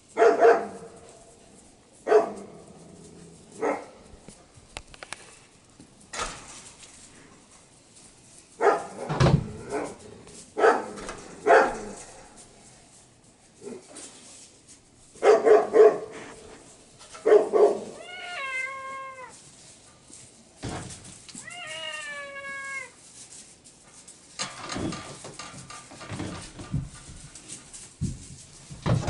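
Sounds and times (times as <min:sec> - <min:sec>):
animal barks: 0:00.2 - 0:01.0, 0:02.0 - 0:04.1, 0:08.6 - 0:10.0, 0:10.6 - 0:12.2, 0:15.2 - 0:16.4, 0:17.2 - 0:18.3
straw rustling: 0:00.6 - 0:24.4.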